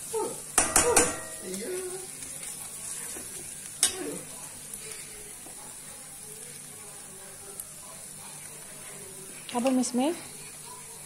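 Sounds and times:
onions sizzling in oil: 0.0 - 11.0
ladle clinking against pan: 0.6 - 1.5.

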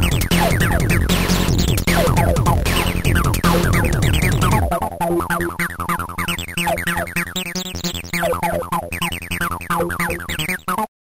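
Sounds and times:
pulsing bass: 0.0 - 5.6
synthesizer music: 0.0 - 10.9.

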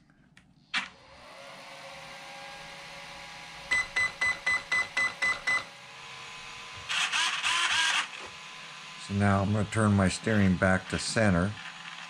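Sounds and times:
steady electrical hum: 1.7 - 12.0
short high beeps: 3.7 - 5.7.

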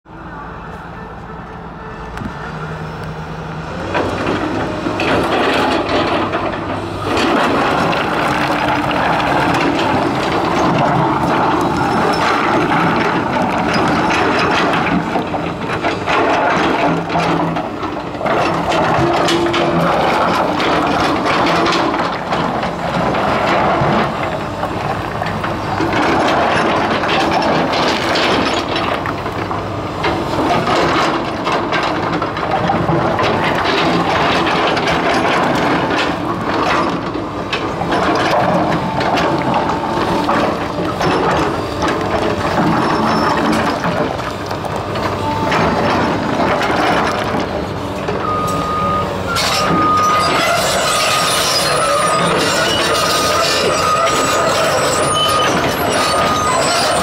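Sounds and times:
excavator diesel engine under load: 0.1 - 57.0
bucket dragging rocks: 3.8 - 24.8.

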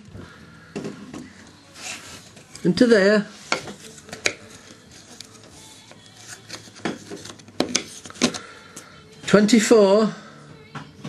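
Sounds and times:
cardboard rubbing and scraping: 1.7 - 2.6, 3.3 - 8.4.

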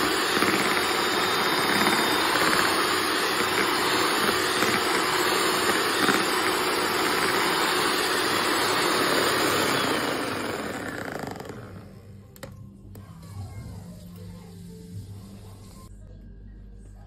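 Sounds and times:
electric hand mixer whirring: 0.0 - 12.2.

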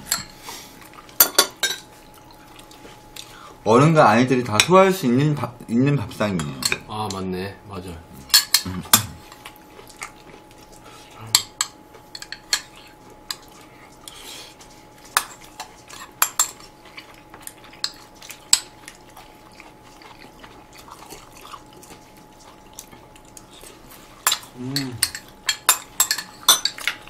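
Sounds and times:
faint steady hum: 0.0 - 27.0
utensils clinking on ceramic bowls: 1.2 - 1.9, 6.3 - 7.2, 8.3 - 9.5, 11.3 - 13.6, 15.0 - 19.7, 24.2 - 27.0.

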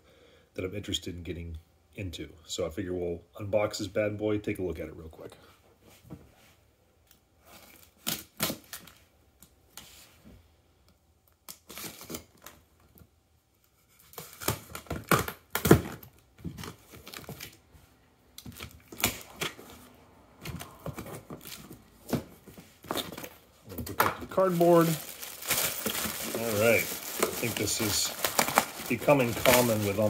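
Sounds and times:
cardboard box being unpacked: 24.3 - 30.0.

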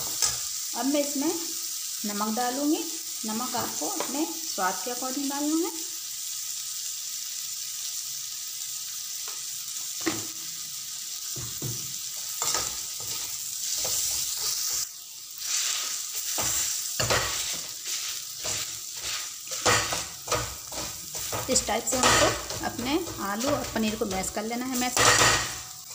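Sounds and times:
metal spatula scraping a pan: 0.0 - 0.5, 12.1 - 25.9
stuffing sizzling in a pan: 0.0 - 25.9
potato masher clinking on pan: 18.4 - 25.6.

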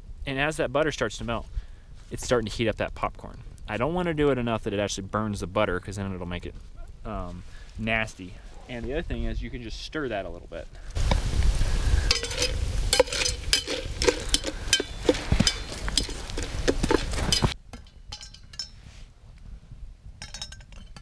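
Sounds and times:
utensil scraping a metal pot: 11.7 - 18.9.

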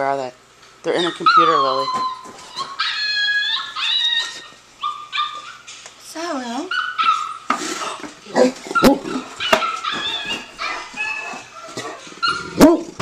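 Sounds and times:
puppy whimpers and yips: 1.1 - 5.7, 6.7 - 7.5, 8.7 - 12.5.

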